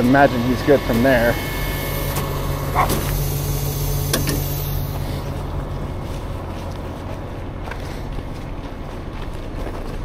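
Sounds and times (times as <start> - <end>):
diesel truck engine idling: 0.0 - 10.0.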